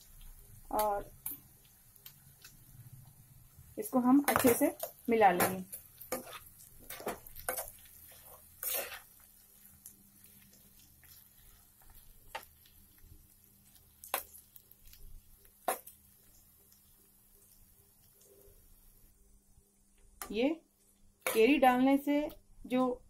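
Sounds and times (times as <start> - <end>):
metal spoon scraping a pan: 4.2 - 12.6.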